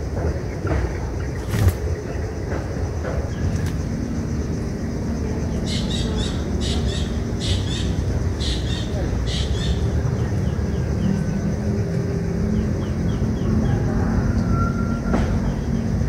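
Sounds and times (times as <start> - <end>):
steady low rumble: 0.0 - 13.7
nestlings chittering begging calls: 5.4 - 11.5.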